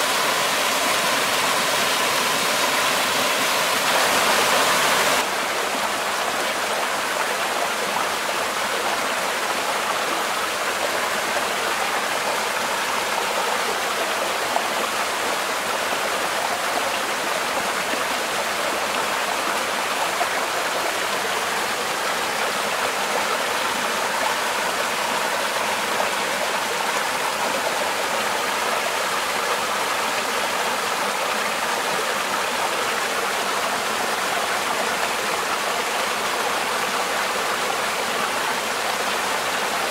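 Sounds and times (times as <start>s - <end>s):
stream splashing over rocks: 0.0s - 7.0s.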